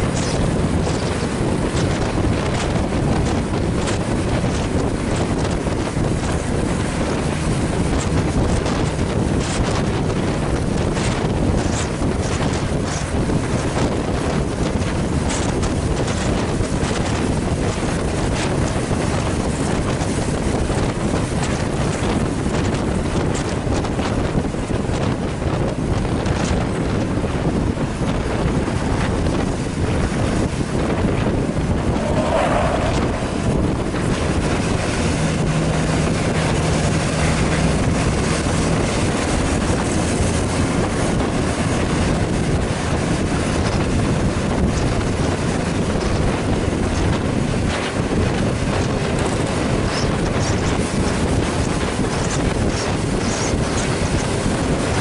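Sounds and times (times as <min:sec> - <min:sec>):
road and engine noise: 0:00.0 - 0:55.0
wind buffeting microphone: 0:00.0 - 0:55.0
low steady drone: 0:31.0 - 0:39.4.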